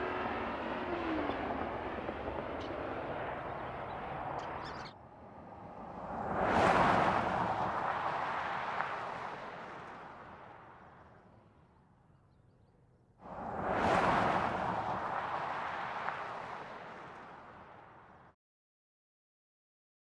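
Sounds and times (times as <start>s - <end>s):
car driving past: 4.1s - 11.0s, 13.2s - 18.2s.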